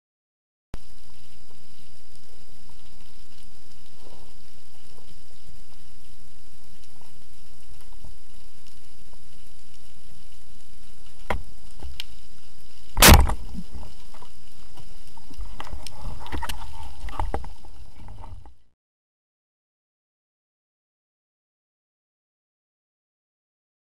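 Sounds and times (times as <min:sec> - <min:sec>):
muffled underwater hiss: 0:00.8 - 0:18.6
faint high whine: 0:00.8 - 0:18.7
small clicks: 0:11.0 - 0:18.6
sharp knock: 0:13.0 - 0:13.4.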